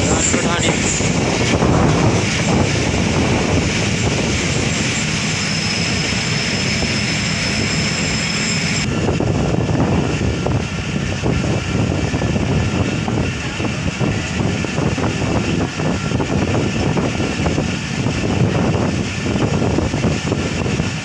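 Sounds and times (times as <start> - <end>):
train wheels rumbling: 0.0 - 21.0
wind rushing past: 0.0 - 21.0
faint high whine: 3.4 - 8.9.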